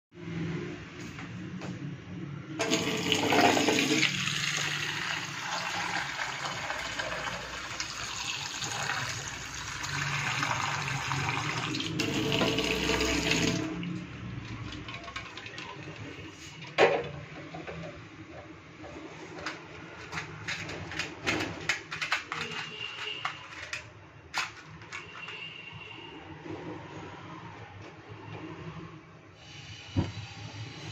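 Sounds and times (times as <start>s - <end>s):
tap water pouring into pan: 2.6s - 13.9s.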